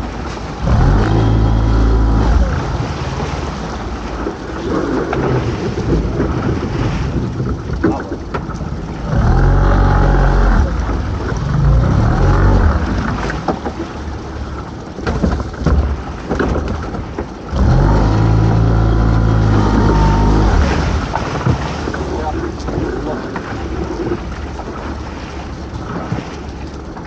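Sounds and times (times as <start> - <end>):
sea noise: 0.0 - 27.0
wind: 0.0 - 27.0
hauler motor whining: 0.6 - 3.8, 9.0 - 13.5, 17.5 - 21.2.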